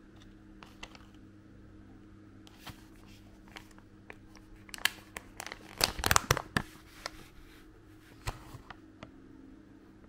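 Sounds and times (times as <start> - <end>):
foil pouch crinkling: 3.4 - 7.3.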